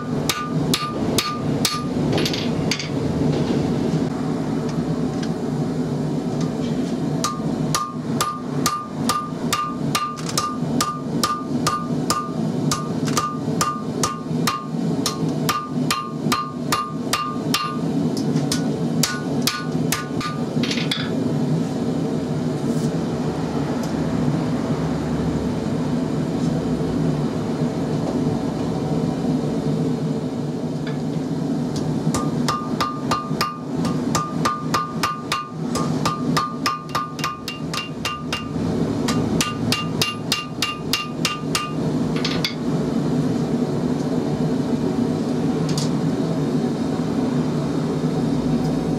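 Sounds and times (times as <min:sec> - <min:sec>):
hammer striking hot steel on anvil: 0:00.0 - 0:03.0, 0:07.2 - 0:21.2, 0:31.7 - 0:42.7.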